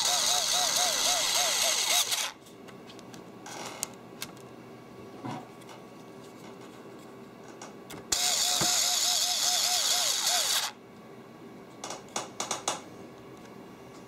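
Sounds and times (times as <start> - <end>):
cordless screwdriver motor whining: 0.0 - 2.4, 8.1 - 10.8.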